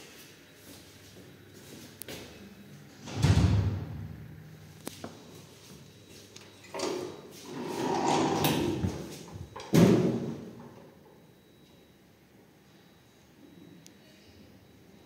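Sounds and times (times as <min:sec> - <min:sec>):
lift doors rolling: 0:02.9 - 0:04.4, 0:06.6 - 0:11.1.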